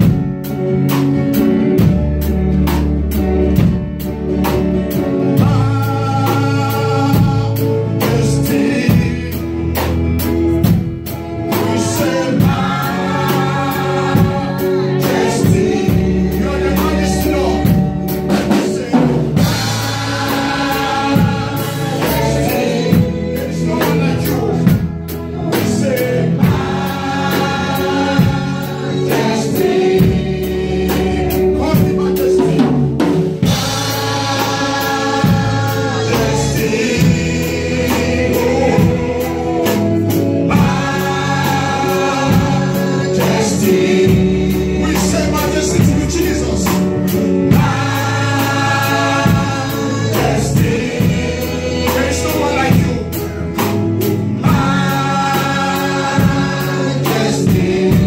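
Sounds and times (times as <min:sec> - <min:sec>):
drum kit beat: 0:00.0 - 0:58.0
guitar: 0:00.0 - 0:58.0
people singing together: 0:00.0 - 0:58.0.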